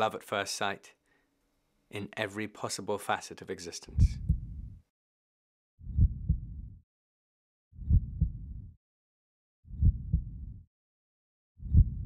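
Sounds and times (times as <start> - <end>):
heartbeat thuds: 3.9 - 4.8, 5.9 - 6.8, 7.8 - 8.7, 9.7 - 10.6, 11.6 - 12.0.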